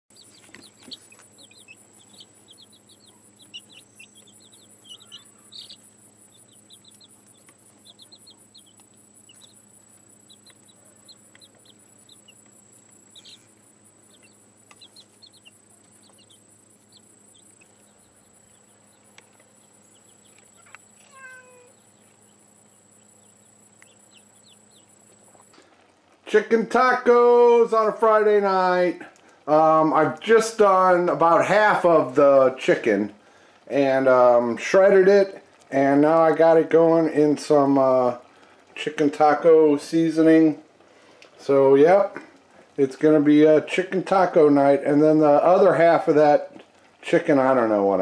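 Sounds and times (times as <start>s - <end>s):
baby chicks peeping: 0.1s - 26.5s, 27.3s - 48.0s
high-pitched insect trill: 0.2s - 25.5s.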